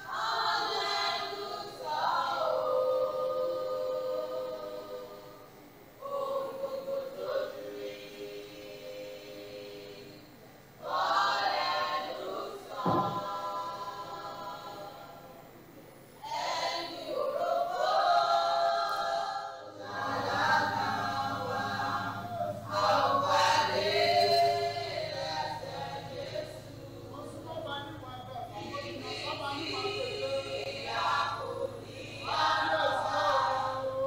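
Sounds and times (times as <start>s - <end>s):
choir singing: 0.0s - 34.0s
low steady hum: 0.0s - 34.0s
sharp knock: 12.8s - 13.2s.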